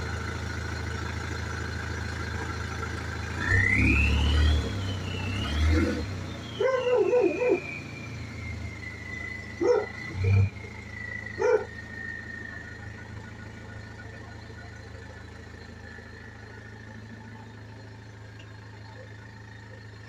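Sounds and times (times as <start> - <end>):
car engine humming: 0.0 - 20.0
dog barking: 6.6 - 7.6, 9.6 - 10.0, 11.4 - 11.7.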